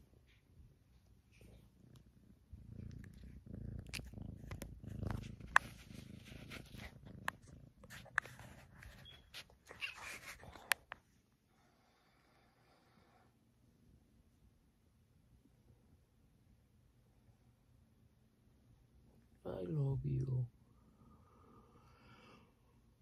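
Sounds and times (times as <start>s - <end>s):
kitten purring: 1.2s - 10.8s.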